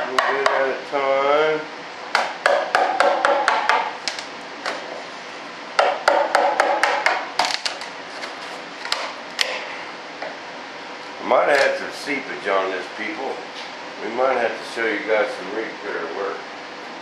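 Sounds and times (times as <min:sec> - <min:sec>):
hammer striking chisel: 0:02.2 - 0:03.9, 0:05.8 - 0:07.3.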